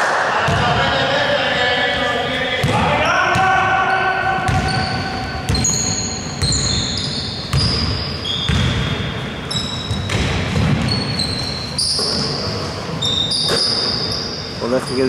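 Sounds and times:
sneakers squeaking: 0.4 - 15.0
basketball bouncing on wood floor: 4.4 - 9.1, 9.8 - 12.2.

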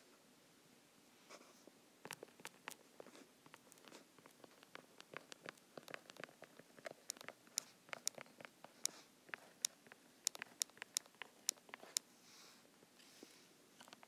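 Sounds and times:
stylus tapping on glass screen: 3.5 - 8.6, 9.3 - 12.0.

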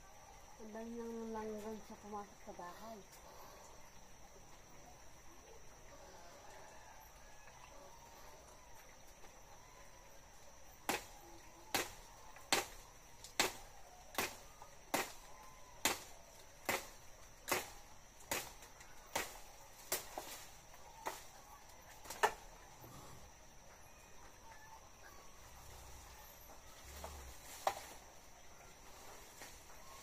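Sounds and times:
high insect trill: 0.0 - 30.0
chopping blows on branch: 10.8 - 21.3, 22.0 - 22.5, 27.6 - 28.0.

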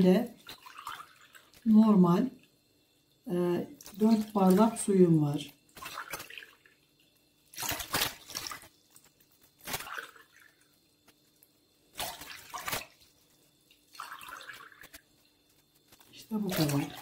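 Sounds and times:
water splashing into bowl: 0.4 - 1.7, 3.7 - 6.8, 7.5 - 8.8, 9.7 - 10.6, 12.0 - 13.1, 13.7 - 15.0, 16.3 - 17.0.

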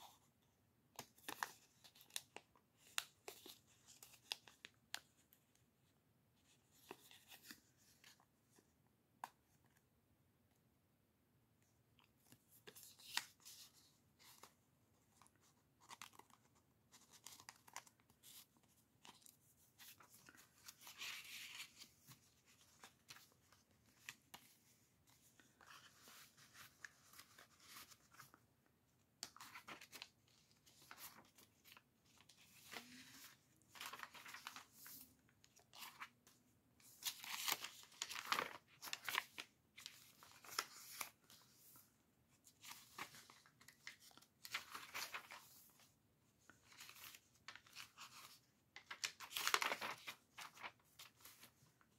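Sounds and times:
paper rustling and crinkling: 15.2 - 28.4, 29.2 - 51.9.

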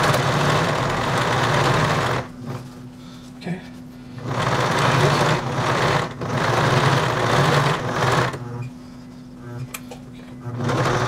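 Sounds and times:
sewing machine stitching: 0.0 - 2.3, 4.2 - 8.4, 10.4 - 11.0.

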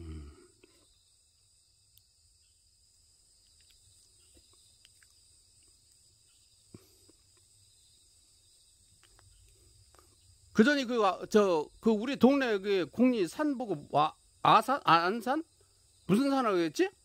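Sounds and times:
faint insect chirring: 0.0 - 17.0
faint clicks: 3.4 - 6.0, 9.0 - 10.1.

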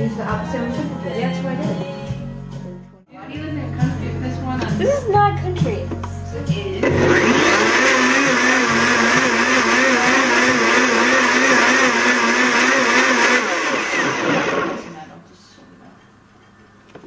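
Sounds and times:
blender running at high speed: 6.8 - 15.0.

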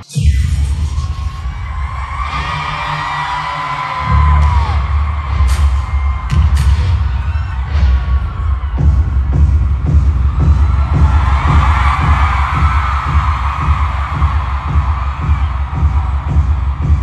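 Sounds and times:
crowd screaming: 0.5 - 17.0
fast pulsing bass beat: 4.0 - 17.0.

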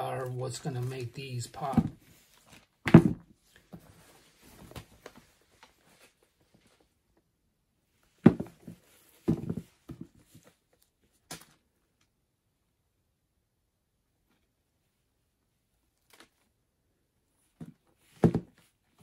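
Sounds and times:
knocks of objects being handled: 1.6 - 2.2, 2.8 - 3.9, 8.2 - 10.4, 17.6 - 18.6.

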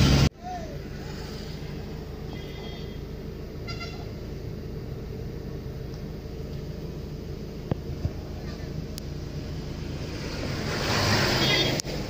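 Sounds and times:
car engine and tyres rumbling: 0.0 - 12.0
vehicle horn toot: 2.2 - 4.2, 11.3 - 11.8.

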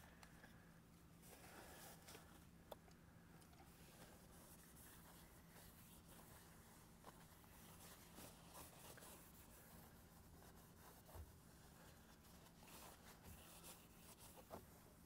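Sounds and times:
low steady hum: 0.0 - 15.0
paper towel wiping door panel: 4.0 - 14.8.

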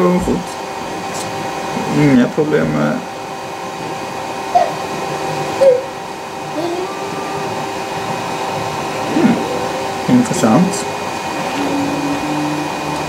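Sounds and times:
printer whirring: 0.0 - 13.0
short gliding tones: 6.6 - 13.0.

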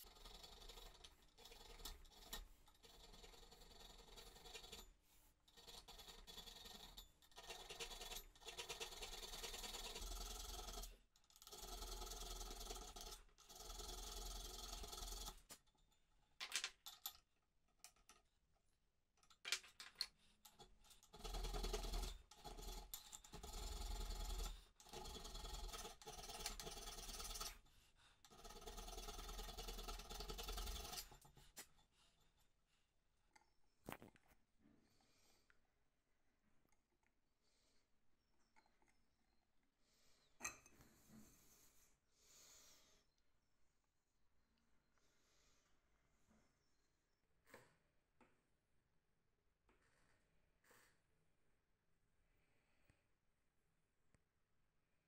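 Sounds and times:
hand file rasping on metal: 0.0 - 15.6, 20.5 - 31.9.

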